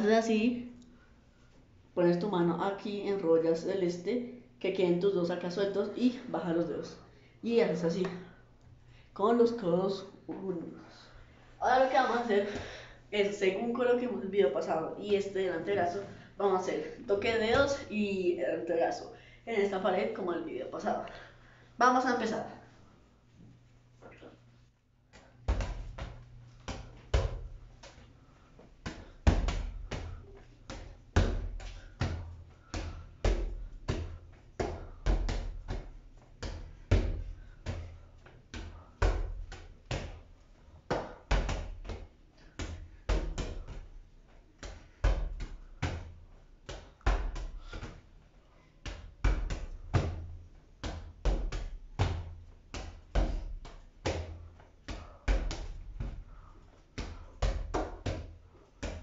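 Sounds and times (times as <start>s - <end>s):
ball thudding against wall: 25.4s - 28.0s, 28.8s - 40.2s.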